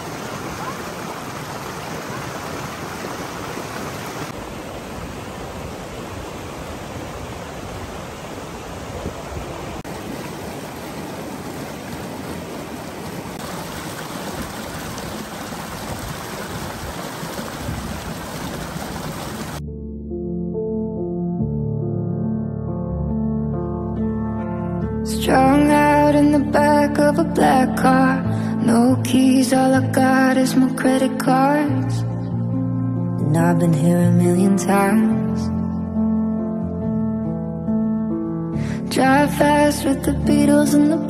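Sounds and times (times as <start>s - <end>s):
creek rushing over rocks: 0.0s - 19.6s.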